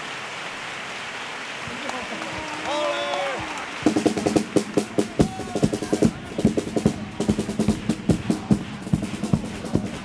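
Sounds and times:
snare and bass drum rhythm: 3.4s - 10.0s.

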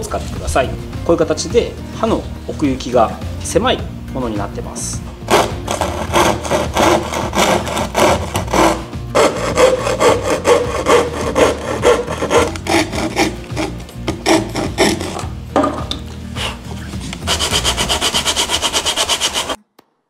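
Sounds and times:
saw rasping through wood: 5.2s - 15.3s, 16.4s - 19.6s.

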